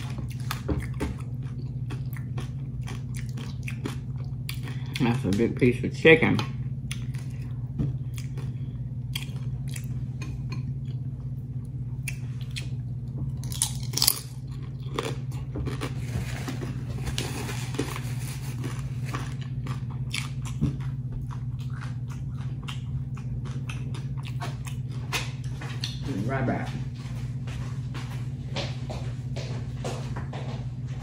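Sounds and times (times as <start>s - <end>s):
steady low hum: 0.0s - 31.0s
crunching tortilla chips: 13.4s - 25.3s.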